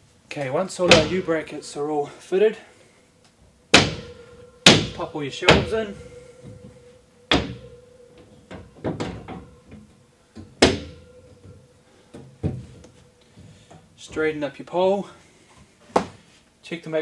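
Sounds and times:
shelves knocking onto brackets: 0.8 - 1.4, 3.7 - 7.8, 8.5 - 11.5, 12.2 - 13.7.

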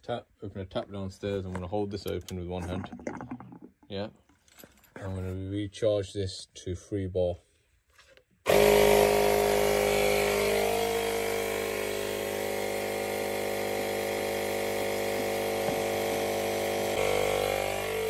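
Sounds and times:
electric air pump running: 8.5 - 18.0.

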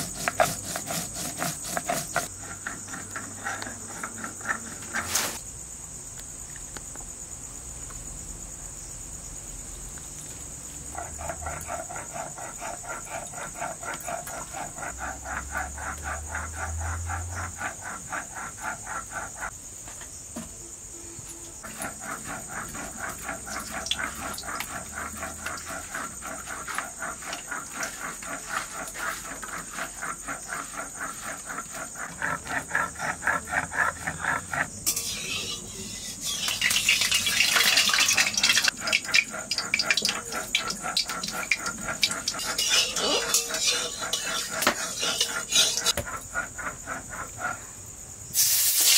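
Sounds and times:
insects chorus pulsing: 0.0 - 48.9
hot oil sizzling and crackling: 23.3 - 27.6, 34.8 - 46.0, 48.3 - 48.9.

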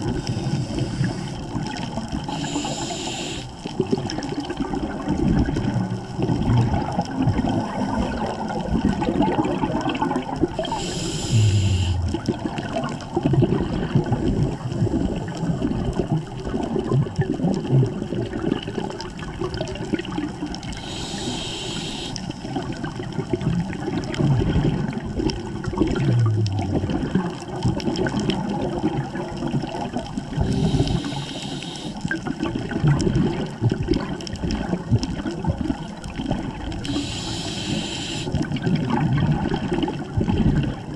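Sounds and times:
bubbling exhaled air: 0.0 - 40.9
regulator inhalation hiss: 0.1 - 1.4, 2.3 - 3.6, 10.6 - 12.2, 20.8 - 22.4, 30.4 - 32.1, 36.8 - 38.4.

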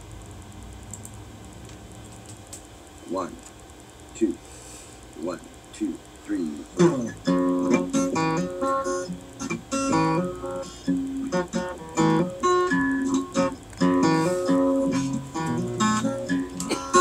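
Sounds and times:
acoustic guitar strumming chords: 6.7 - 17.0.

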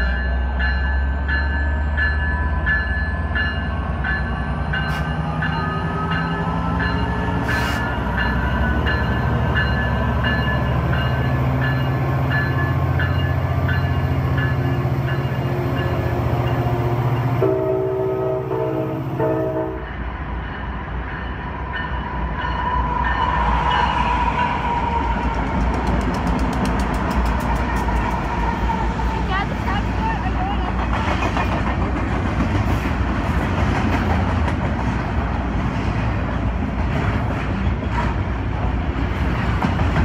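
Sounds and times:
locomotive bell ringing: 0.0 - 24.5
diesel locomotive engine drone: 0.0 - 40.0
train horn: 17.4 - 19.9.

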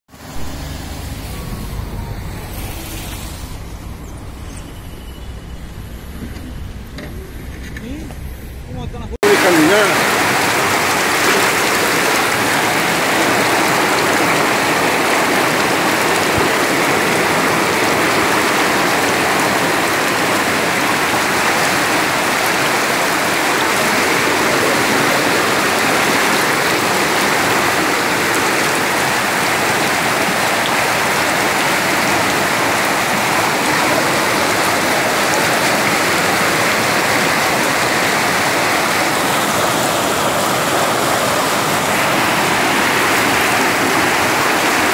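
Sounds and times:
floodwater rushing: 0.1 - 8.5, 9.2 - 44.9.

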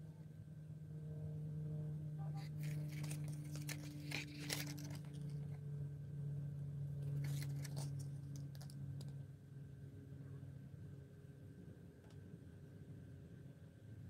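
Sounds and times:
steady low hum: 0.0 - 14.0
cardboard and leather rustling: 2.4 - 5.6, 7.0 - 8.7.

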